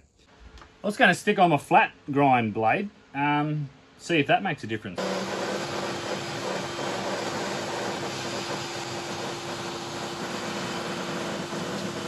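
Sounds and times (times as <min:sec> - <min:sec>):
saw blade cutting wood: 0:05.0 - 0:12.0
table saw motor hum: 0:05.0 - 0:12.0.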